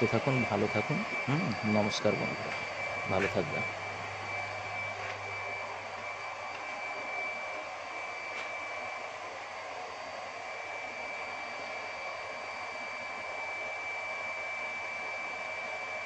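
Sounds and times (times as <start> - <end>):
high-pitched whine: 0.0 - 16.0.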